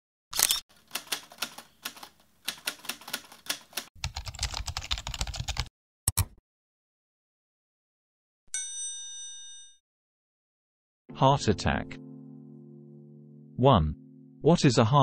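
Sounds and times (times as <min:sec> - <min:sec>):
keyboard keystrokes clacking: 0:00.9 - 0:06.4.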